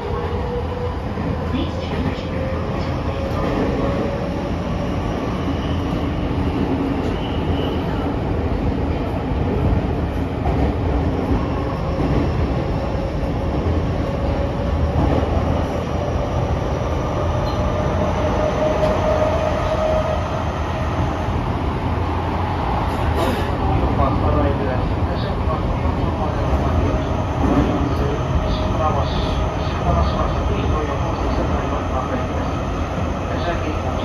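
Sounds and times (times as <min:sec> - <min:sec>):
thin whine of train: 0:00.0 - 0:08.3
train wheels rumbling on rails: 0:00.0 - 0:34.0.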